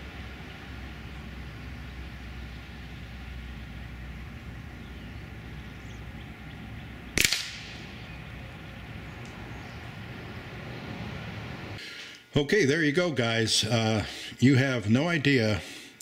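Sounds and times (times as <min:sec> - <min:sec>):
steady low rumble: 0:00.0 - 0:11.8
distant gunshot crack: 0:07.1 - 0:08.2.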